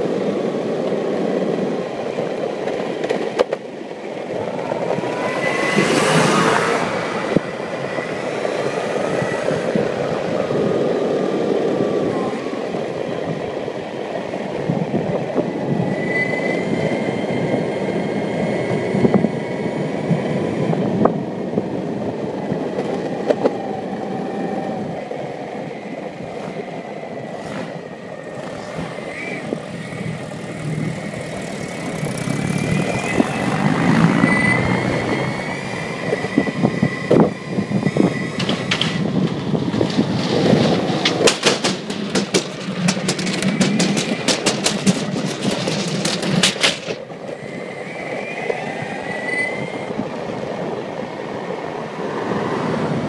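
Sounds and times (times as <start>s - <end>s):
skateboard wheels rumbling: 0.0s - 53.0s
sharp clicks from bumps: 2.6s - 3.7s, 37.9s - 47.4s.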